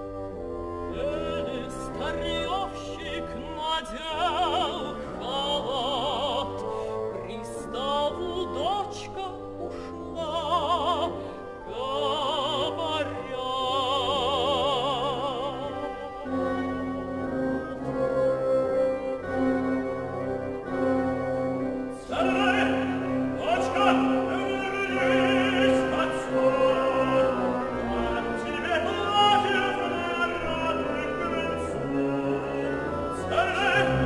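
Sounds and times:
symphony orchestra: 0.0 - 34.0
woman singing operatically: 1.0 - 16.3, 22.0 - 32.2.

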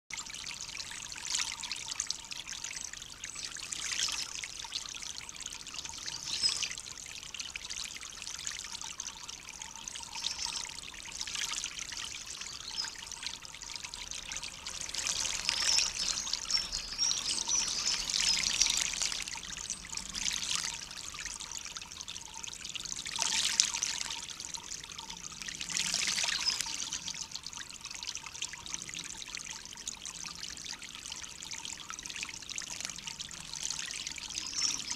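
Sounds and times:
water splashing in birdbath: 0.1 - 34.9.

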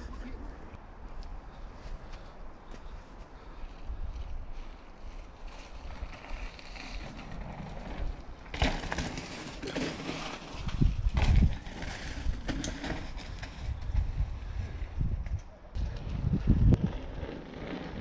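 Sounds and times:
bike tyres rolling on dirt: 1.8 - 18.0
bike knocking over rough ground: 6.0 - 14.1.

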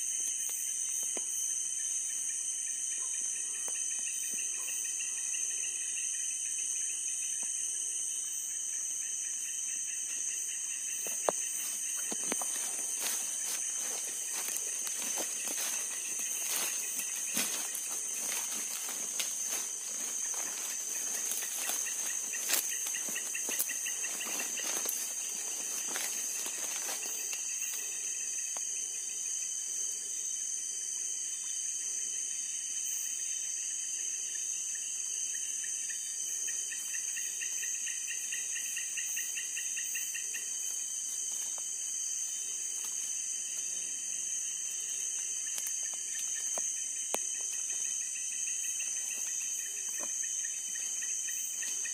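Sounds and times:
crickets trilling: 0.0 - 51.9
lower pulsing insect trill: 0.0 - 51.9
footsteps through wet grass: 11.1 - 27.4.

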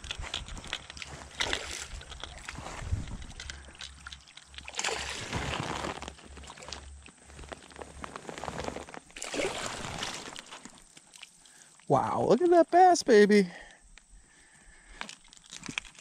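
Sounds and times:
water splashing and sloshing: 0.0 - 11.9.

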